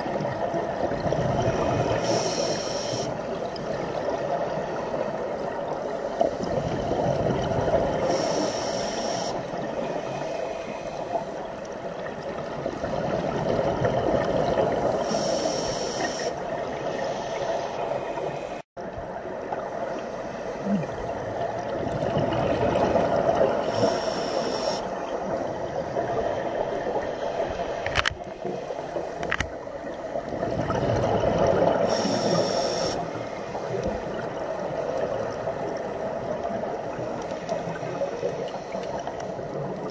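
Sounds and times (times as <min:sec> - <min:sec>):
gurgling exhaled bubbles: 0:00.0 - 0:02.4, 0:03.0 - 0:08.3, 0:12.0 - 0:15.3, 0:20.6 - 0:24.0, 0:29.9 - 0:38.0
regulator inhale hiss: 0:02.0 - 0:03.2, 0:08.0 - 0:11.5, 0:15.0 - 0:16.4, 0:17.0 - 0:18.6, 0:19.9 - 0:21.0, 0:23.6 - 0:24.9, 0:31.8 - 0:33.8.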